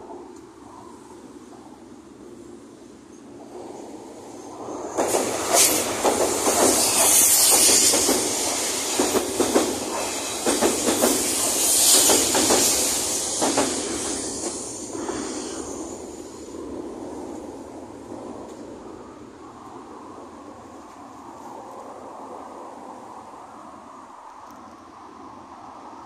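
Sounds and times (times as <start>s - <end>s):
electric train passing: 0.0s - 24.8s
wheels clacking over rail joints: 4.4s - 15.6s.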